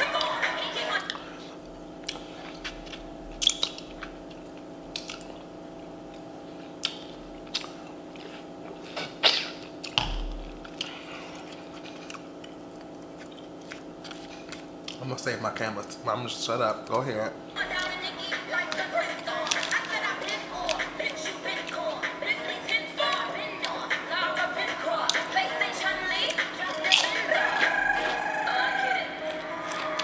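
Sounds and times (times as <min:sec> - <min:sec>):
steady low hum: 0:00.0 - 0:30.0
wet chewing and mouth smacks: 0:02.0 - 0:15.0.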